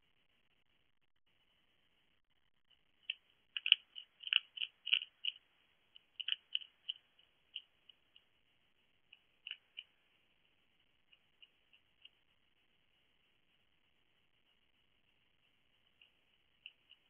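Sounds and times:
hedgehog crunching pellets: 0:03.0 - 0:08.4, 0:09.1 - 0:10.3, 0:15.9 - 0:17.0.

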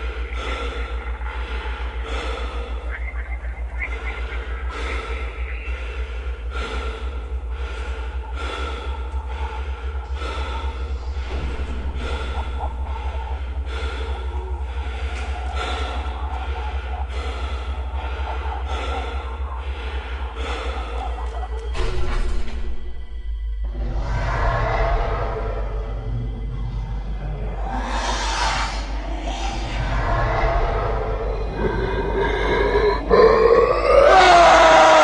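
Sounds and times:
low drone: 0:00.0 - 0:35.0
person breathing heavily: 0:00.0 - 0:35.0.

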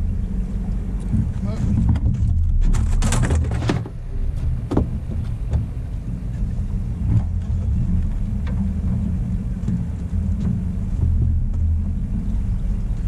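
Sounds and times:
outboard motor running: 0:00.0 - 0:13.0
crinkling and clicking: 0:01.8 - 0:05.7.

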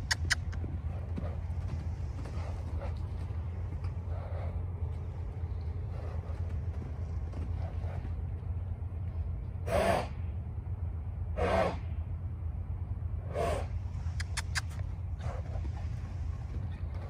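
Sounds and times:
horse snorting: 0:00.0 - 0:04.8
steady low rumble: 0:00.0 - 0:17.0.

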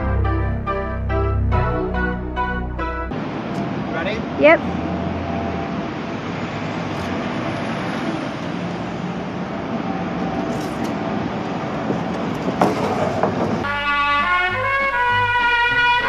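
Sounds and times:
brass music: 0:00.0 - 0:03.2, 0:13.6 - 0:16.0
road traffic passing: 0:00.0 - 0:16.0.

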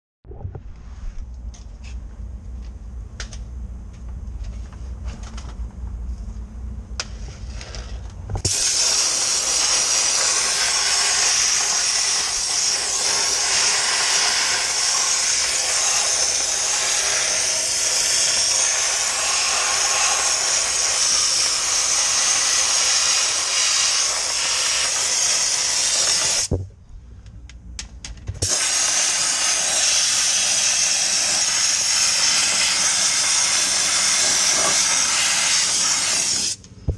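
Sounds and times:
low hum: 0:00.2 - 0:08.4
compressed air blast hiss: 0:08.4 - 0:26.5, 0:28.4 - 0:36.6.

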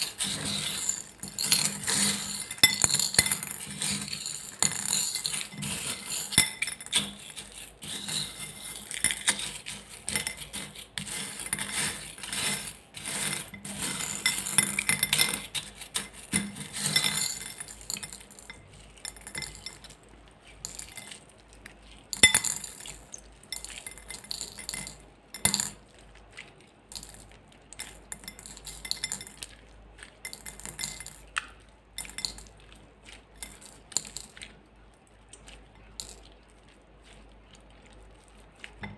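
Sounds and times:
beads clinking against glass bowl: 0:00.0 - 0:20.0, 0:20.6 - 0:21.3, 0:22.1 - 0:25.8, 0:26.9 - 0:29.6, 0:30.2 - 0:31.4, 0:32.0 - 0:32.5, 0:33.4 - 0:34.4.

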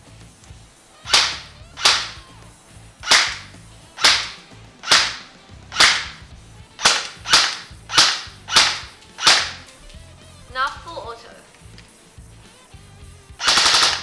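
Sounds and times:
faint background music: 0:00.0 - 0:14.0
airsoft gun shots: 0:01.0 - 0:02.3, 0:03.0 - 0:09.8, 0:13.4 - 0:14.0.

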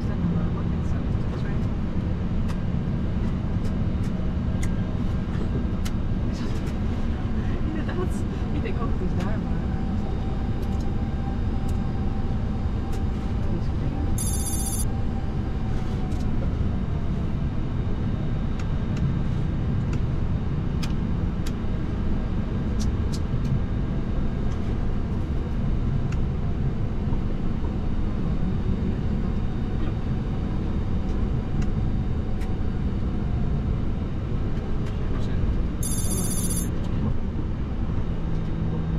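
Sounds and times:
airliner engines idling rumble: 0:00.0 - 0:38.9
faint steady whine: 0:09.9 - 0:18.4, 0:35.8 - 0:36.7.

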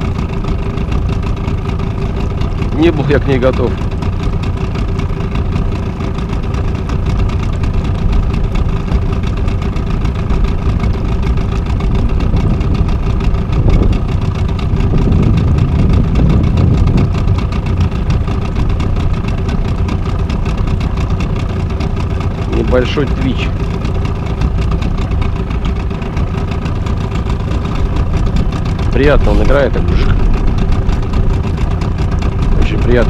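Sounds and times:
outboard motor running: 0:00.0 - 0:33.0
wind rumbling on microphone: 0:07.1 - 0:21.4, 0:23.9 - 0:33.0.

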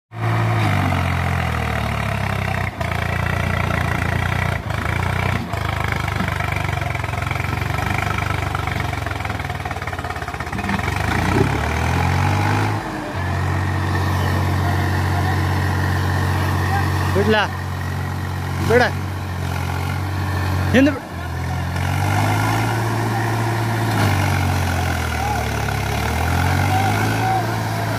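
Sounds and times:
tractor diesel engine running hard: 0:00.1 - 0:27.9.

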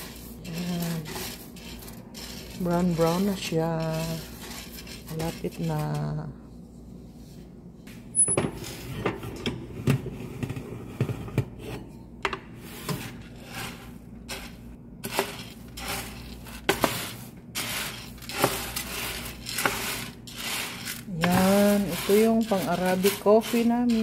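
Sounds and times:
coffee beans rustling and rattling: 0:00.0 - 0:06.2, 0:13.1 - 0:24.0.

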